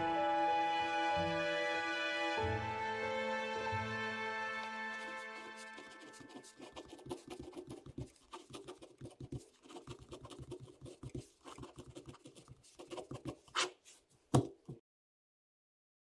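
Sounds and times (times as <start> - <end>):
pen scratching on paper: 4.9 - 14.8.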